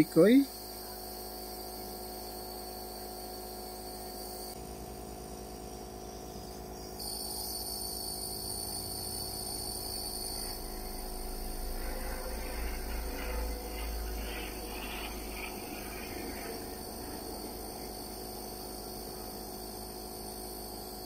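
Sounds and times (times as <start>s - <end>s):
nebulizer compressor buzzing: 7.0s - 19.8s
air and mist hissing: 8.7s - 19.2s.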